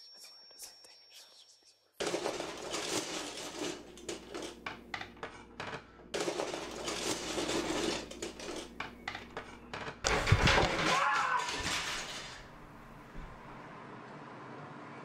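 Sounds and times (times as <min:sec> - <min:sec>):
cutlery clinking and clattering: 0:02.0 - 0:12.6.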